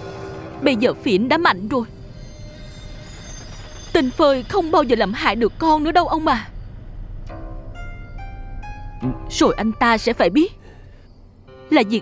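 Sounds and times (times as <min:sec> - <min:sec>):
low hum: 0:00.0 - 0:11.7
soft film music: 0:00.0 - 0:12.0
woman speaking: 0:00.6 - 0:01.9, 0:03.9 - 0:06.5, 0:09.3 - 0:10.6, 0:11.7 - 0:12.0.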